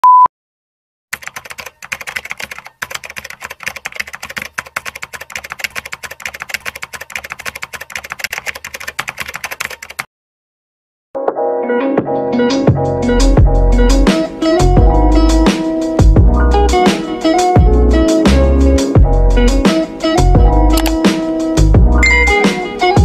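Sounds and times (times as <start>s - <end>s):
keyboard typing clicks: 1.2s - 10.1s, 20.7s - 21.0s.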